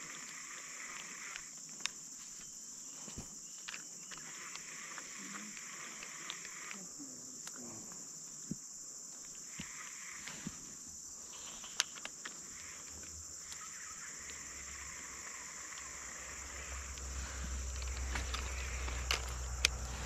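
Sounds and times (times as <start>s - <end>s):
high insect drone: 0.0s - 20.0s
low rumble: 14.2s - 20.0s.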